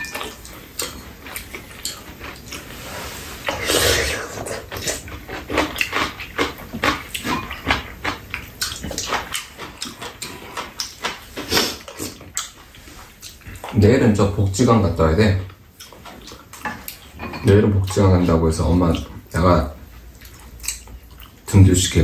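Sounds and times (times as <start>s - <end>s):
chewing: 0.0s - 13.9s, 15.5s - 21.6s
slurping: 0.2s - 6.5s.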